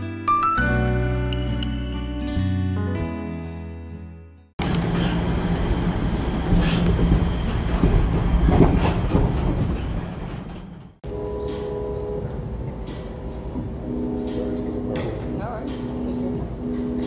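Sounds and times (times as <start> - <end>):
wheels clacking over rails: 4.6 - 11.0
subway train rumble: 4.6 - 17.0.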